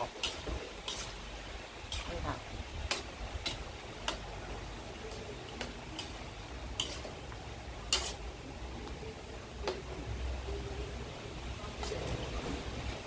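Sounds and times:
metal spatula scraping wok: 0:00.0 - 0:08.6
oil frying hiss: 0:00.0 - 0:13.0.

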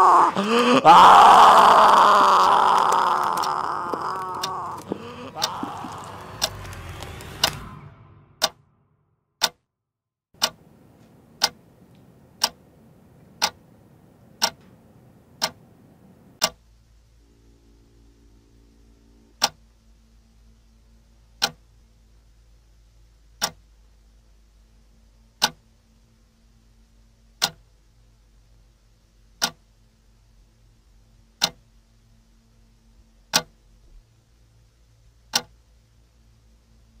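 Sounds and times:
clock ticking: 0:03.0 - 0:07.6, 0:08.4 - 0:08.6, 0:09.4 - 0:09.6, 0:10.4 - 0:15.8, 0:16.4 - 0:16.6, 0:19.4 - 0:19.6, 0:21.4 - 0:21.6, 0:23.4 - 0:23.7, 0:25.4 - 0:25.6, 0:27.4 - 0:27.7, 0:29.4 - 0:29.6, 0:31.4 - 0:31.6, 0:33.3 - 0:33.5, 0:35.3 - 0:35.5
faint low drone: 0:04.5 - 0:09.2, 0:16.6 - 0:29.2.

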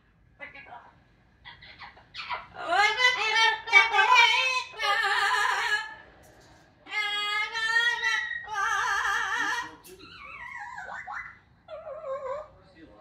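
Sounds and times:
parrot singing: 0:01.4 - 0:06.0, 0:06.8 - 0:12.5.

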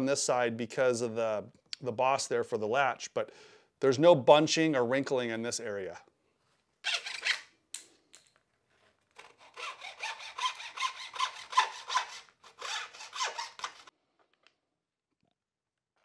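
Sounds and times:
hacksaw sawing wood: 0:09.2 - 0:13.9.

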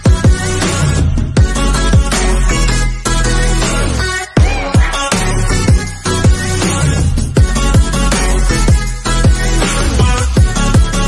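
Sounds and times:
deep kick drum: 0:00.0 - 0:02.2, 0:04.4 - 0:08.1, 0:08.7 - 0:11.0.

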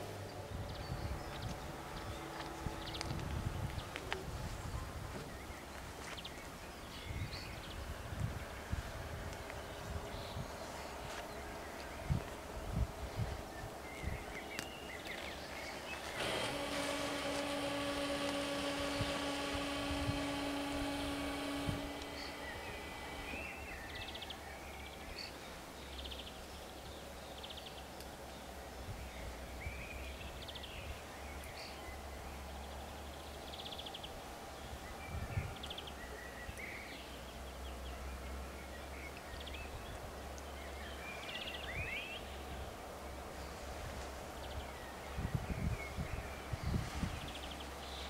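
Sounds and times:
steady low rumble: 0:00.0 - 0:05.7
songbirds chirping and trilling: 0:00.0 - 0:48.0.

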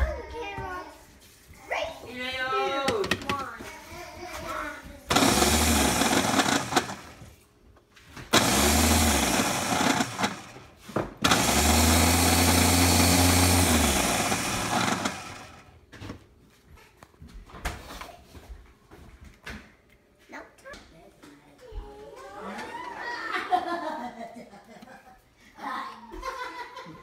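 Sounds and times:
blender motor running: 0:05.1 - 0:07.3, 0:08.3 - 0:15.8.

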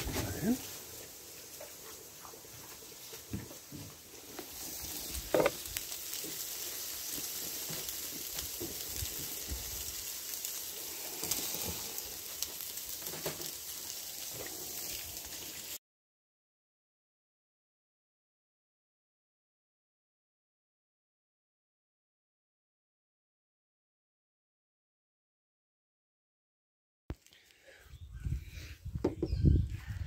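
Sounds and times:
sausages sizzling on a grill: 0:00.0 - 0:15.8.

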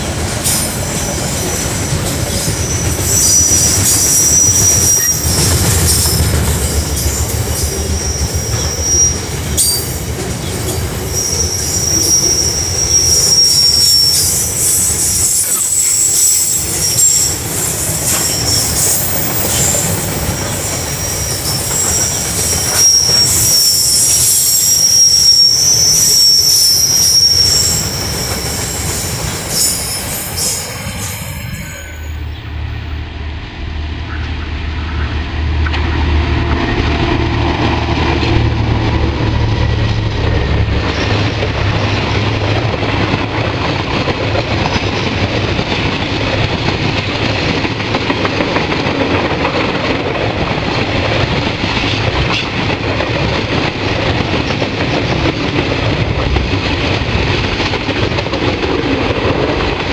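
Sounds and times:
freight train wheels rumbling: 0:00.0 - 0:59.9
high-pitched wheel squeal: 0:00.5 - 0:32.8.

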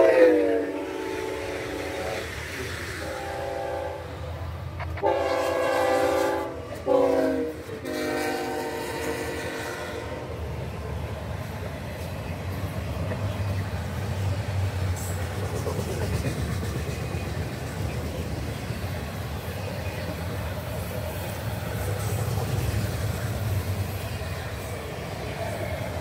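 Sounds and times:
train wheels rumbling on rails: 0:00.0 - 0:26.0
wheels clicking over rail joints: 0:10.8 - 0:26.0.

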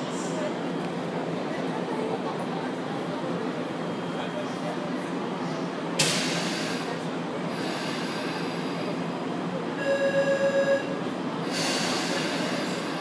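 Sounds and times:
electric train rumbling: 0:05.6 - 0:13.0.

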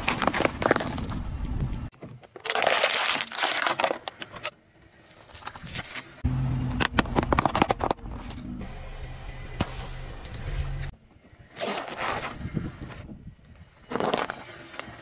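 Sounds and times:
tyre crushing objects: 0:00.0 - 0:01.3
car running hum: 0:06.2 - 0:10.9.

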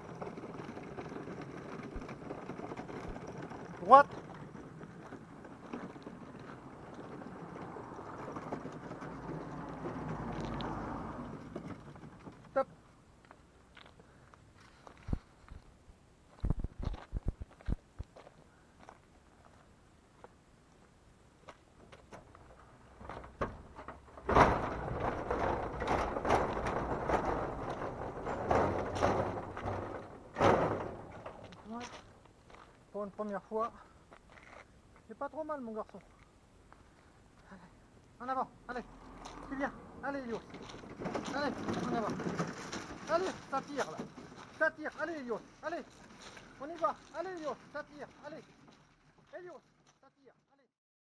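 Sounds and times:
cart wheels rolling and rattling: 0:00.0 - 0:13.8, 0:21.8 - 0:34.6, 0:38.8 - 0:50.4
wheels crunching on gravel: 0:00.0 - 0:15.7, 0:21.4 - 0:37.1, 0:38.8 - 0:50.4
footsteps on gravel: 0:13.2 - 0:14.0, 0:16.3 - 0:20.4, 0:31.4 - 0:32.8, 0:40.3 - 0:50.0
footsteps: 0:13.2 - 0:20.4, 0:21.4 - 0:35.1, 0:38.8 - 0:50.1.

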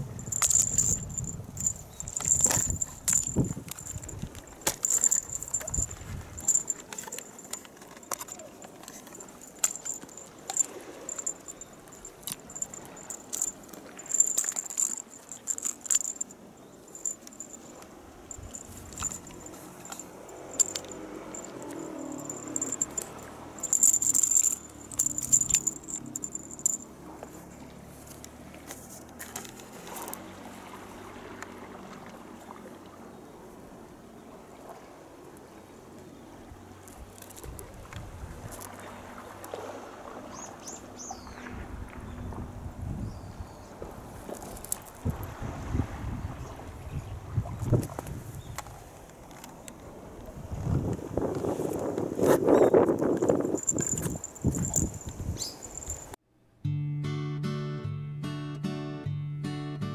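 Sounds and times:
cat toy jingling and rattling: 0:00.1 - 0:26.9, 0:53.0 - 0:56.2.

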